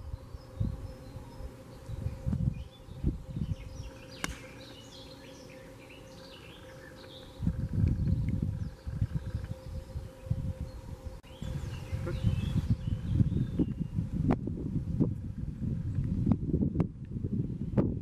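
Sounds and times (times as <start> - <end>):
wind gusts on microphone: 0.0 - 4.7, 7.3 - 18.0
golf club striking ball: 4.2 - 4.6.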